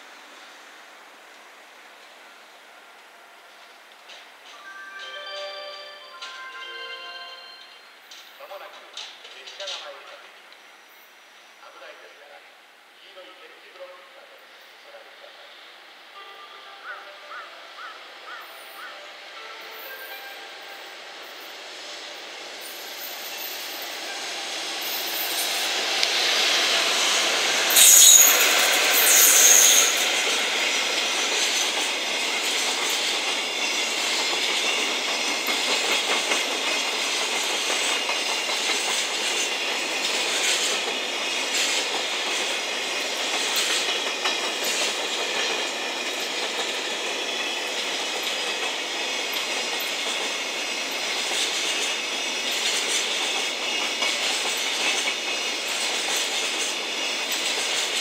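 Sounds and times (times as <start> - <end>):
train wheels rolling on rail: 0.0 - 4.7, 7.9 - 12.4, 17.3 - 58.0
clickety-clack over rail joints: 3.0 - 4.6, 8.1 - 10.4, 27.7 - 58.0
high wheel squeals: 27.1 - 31.8.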